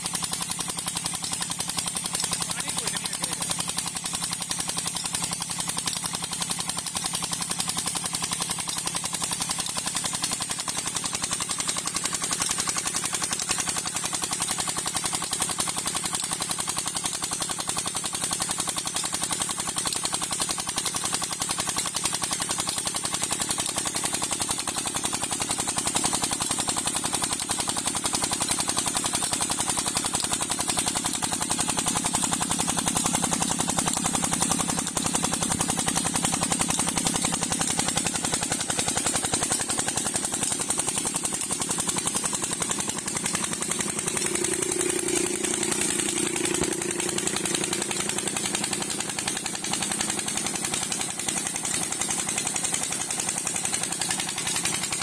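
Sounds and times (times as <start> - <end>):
diesel engine running: 0.0 - 15.2, 28.4 - 55.0.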